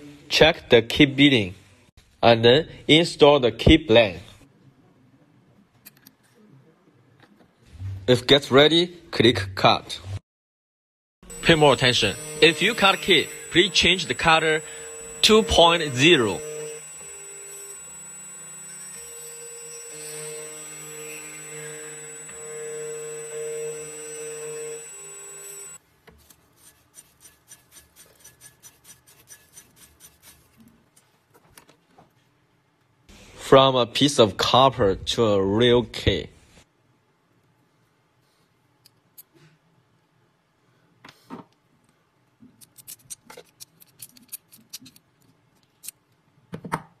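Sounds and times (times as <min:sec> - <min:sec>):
humming whine of machine: 0:11.2 - 0:25.8
metal key handling clicks: 0:42.6 - 0:45.1.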